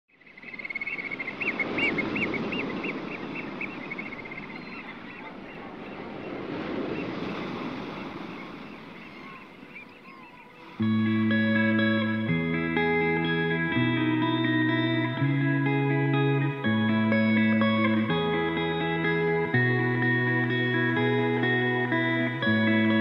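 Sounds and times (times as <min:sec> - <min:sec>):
bird calling: 0:00.1 - 0:12.1
waves washing: 0:00.7 - 0:23.0
music: 0:10.8 - 0:23.0.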